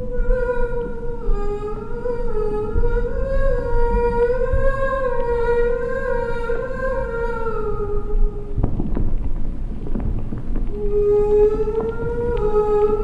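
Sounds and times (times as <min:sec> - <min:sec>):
low rumble: 0:00.0 - 0:13.0
woman humming: 0:10.8 - 0:13.0.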